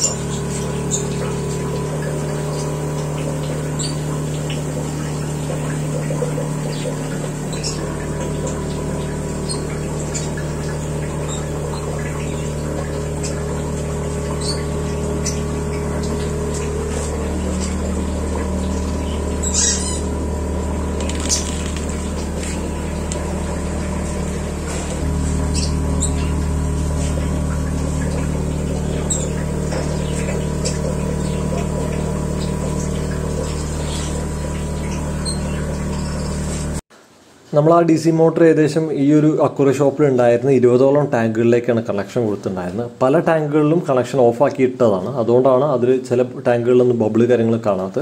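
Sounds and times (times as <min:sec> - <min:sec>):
air bubbling in water: 0:00.0 - 0:36.8
air compressor humming: 0:00.0 - 0:36.8.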